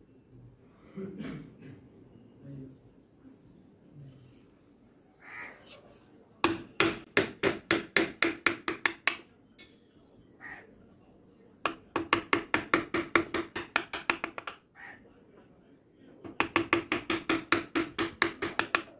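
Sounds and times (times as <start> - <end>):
mallet tapping gouge handle: 6.4 - 9.2, 11.6 - 14.6, 16.2 - 18.9.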